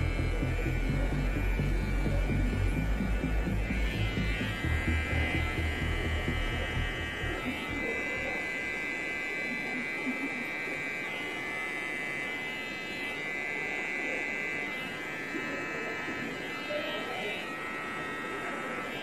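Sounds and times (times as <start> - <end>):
background music with deep bass: 0.0 - 7.6
electric hair trimmer buzzing: 0.0 - 19.0.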